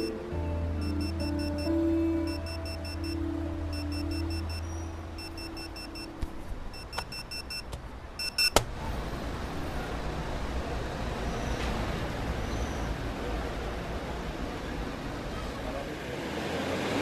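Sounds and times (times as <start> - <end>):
fast high electronic beeps: 2.3 - 6.1.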